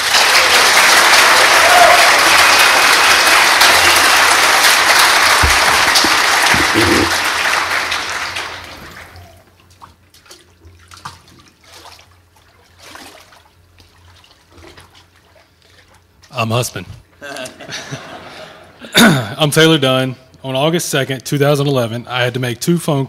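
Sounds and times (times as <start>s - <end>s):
congregation applauding: 0.0s - 9.4s
water splashes and drips: 9.5s - 16.3s.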